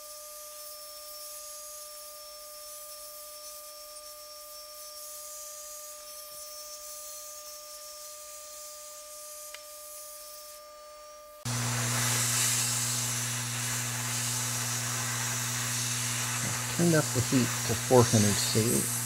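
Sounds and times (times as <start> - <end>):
hot air gun blower hissing: 11.4 - 19.0
steady low hum: 11.4 - 19.0.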